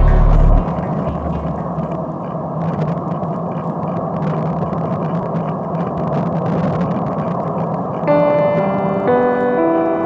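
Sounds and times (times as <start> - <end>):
low even hum: 0.0 - 10.0
wind and wet tyre noise: 0.0 - 10.0.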